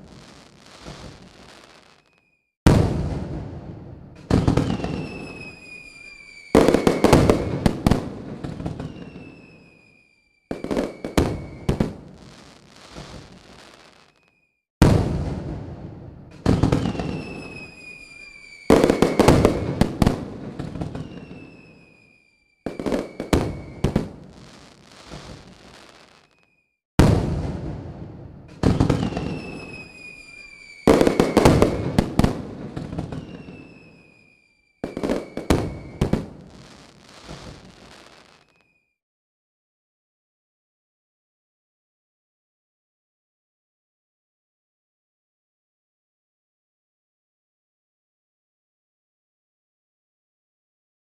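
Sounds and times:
fireworks bangs: 0:00.0 - 0:38.6
fireworks crackling: 0:00.0 - 0:38.7
high whistles sliding down: 0:04.6 - 0:07.2, 0:08.8 - 0:11.7, 0:16.9 - 0:19.6, 0:20.9 - 0:24.0, 0:29.0 - 0:32.0, 0:33.0 - 0:36.1.

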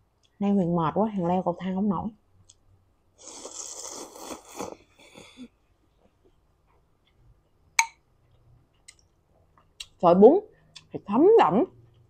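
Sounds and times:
person slurping noodles: 0:03.2 - 0:05.5
faint chewing: 0:08.2 - 0:10.0.

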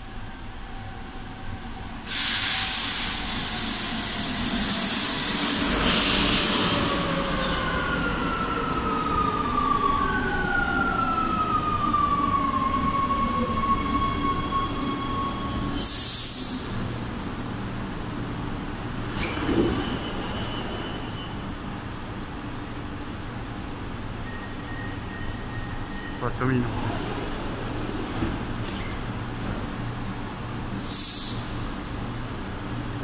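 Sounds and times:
train rushing noise: 0:00.2 - 0:23.2, 0:25.0 - 0:33.0
train braking whine: 0:01.6 - 0:17.3, 0:19.1 - 0:21.5, 0:24.2 - 0:26.5, 0:30.8 - 0:32.1
brake hiss: 0:02.1 - 0:06.6, 0:30.8 - 0:32.1.

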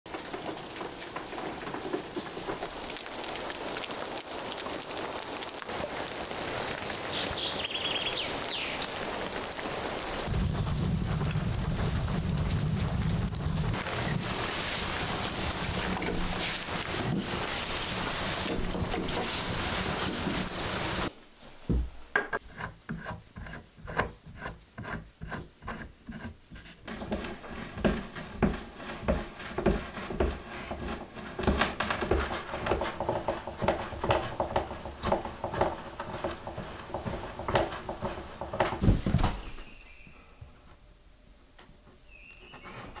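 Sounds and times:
steady rushing hiss: 0:00.1 - 0:22.1
hand drill rasping in wood: 0:23.5 - 0:38.8.

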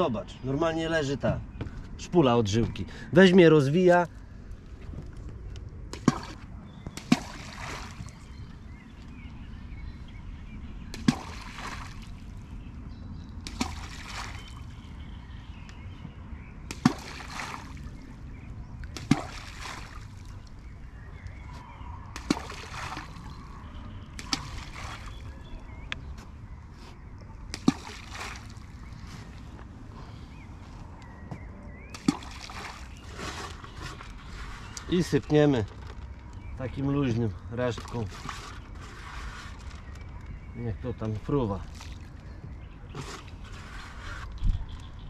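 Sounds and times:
balls plopping into water: 0:05.9 - 0:08.1, 0:13.4 - 0:14.6, 0:16.7 - 0:17.8, 0:18.8 - 0:20.3, 0:22.1 - 0:23.3, 0:24.1 - 0:25.2, 0:27.5 - 0:28.7, 0:31.9 - 0:33.0.

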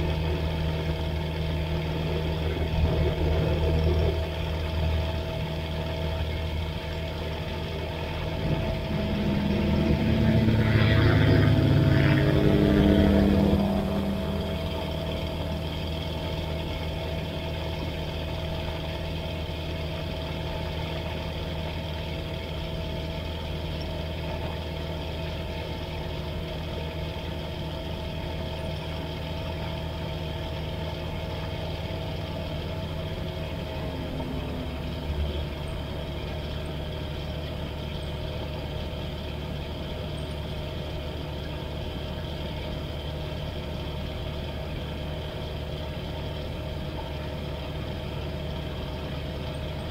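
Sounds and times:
light aircraft engine idling: 0:00.0 - 0:49.9.

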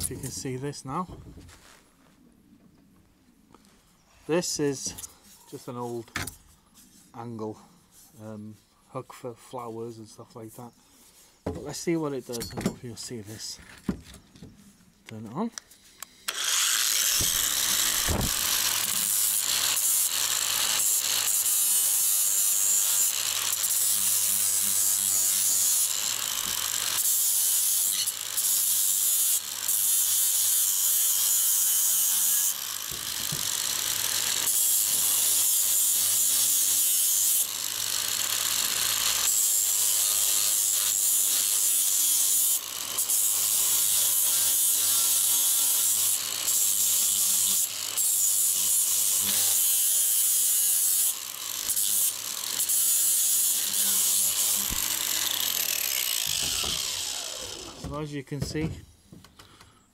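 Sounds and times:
angle grinder grinding metal: 0:16.0 - 0:58.0.

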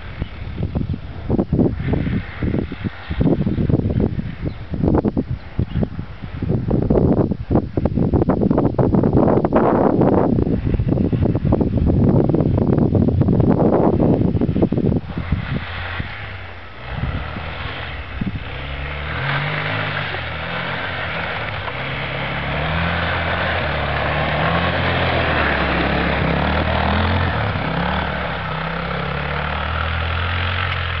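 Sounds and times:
quad bike engine revving: 0:13.9 - 0:31.0.

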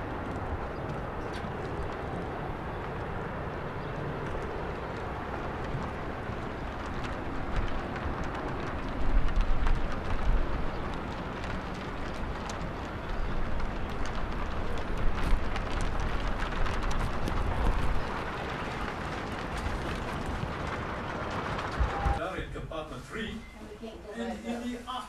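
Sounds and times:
light footsteps on metal deck: 0:00.0 - 0:02.2
wind buffeting microphone: 0:00.0 - 0:22.6.

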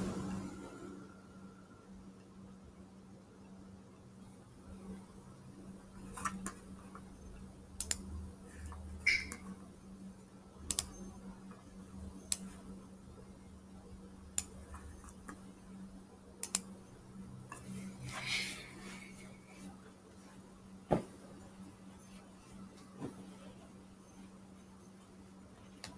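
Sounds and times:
low steady hum: 0:00.0 - 0:25.9
computer mouse clicking: 0:07.8 - 0:09.6, 0:10.7 - 0:11.0, 0:16.4 - 0:16.7.

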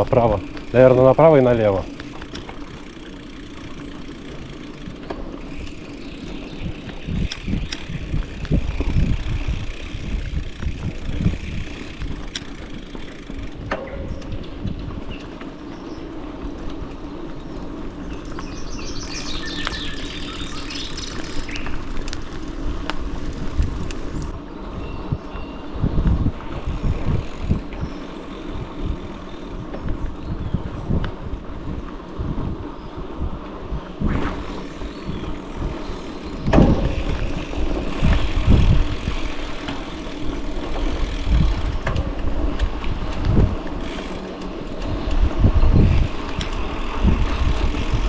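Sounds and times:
bike tyres rumbling on dirt: 0:00.0 - 0:48.0
bike thumps and rattles: 0:01.9 - 0:15.2, 0:34.0 - 0:48.0
bird chirping: 0:18.0 - 0:21.8.

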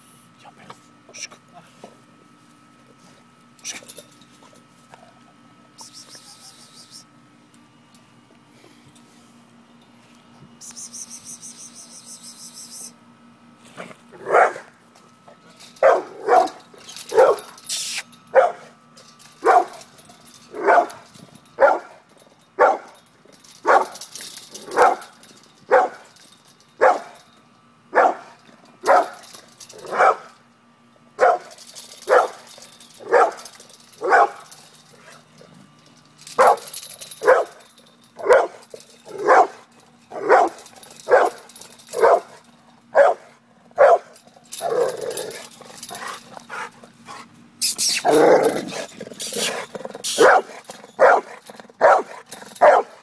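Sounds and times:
dog barking: 0:14.2 - 0:14.7, 0:15.8 - 0:17.5, 0:18.4 - 0:18.7, 0:19.4 - 0:19.7, 0:20.6 - 0:21.0, 0:21.6 - 0:22.0, 0:22.6 - 0:22.9, 0:23.7 - 0:24.0, 0:24.7 - 0:25.0, 0:25.7 - 0:26.0, 0:26.8 - 0:27.2, 0:28.0 - 0:29.2, 0:29.8 - 0:30.3, 0:31.2 - 0:31.5, 0:32.1 - 0:32.4, 0:33.0 - 0:33.4, 0:34.0 - 0:34.4, 0:36.4 - 0:37.6, 0:38.2 - 0:38.6, 0:39.2 - 0:39.6, 0:40.2 - 0:41.4, 0:42.0 - 0:42.3, 0:43.0 - 0:44.2, 0:50.2 - 0:53.0.

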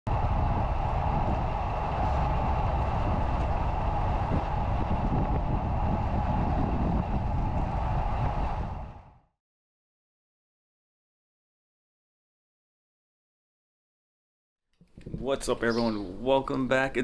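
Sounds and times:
tyres rolling on asphalt: 0:00.1 - 0:09.1
wind buffeting microphone: 0:00.1 - 0:09.3, 0:14.8 - 0:17.0.

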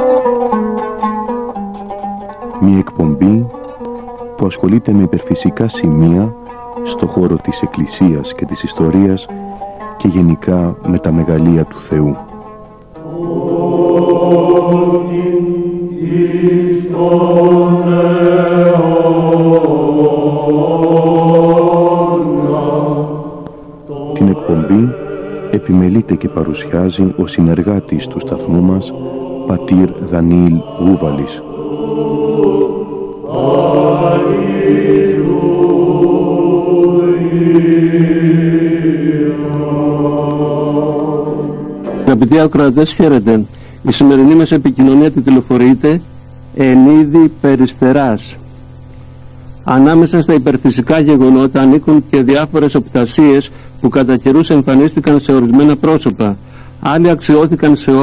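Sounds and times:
chanting voices: 0:02.3 - 0:58.0
low drone: 0:11.1 - 0:53.0.

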